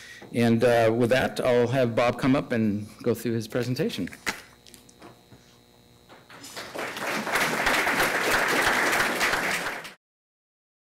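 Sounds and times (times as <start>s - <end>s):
audience applause: 6.4s - 10.0s.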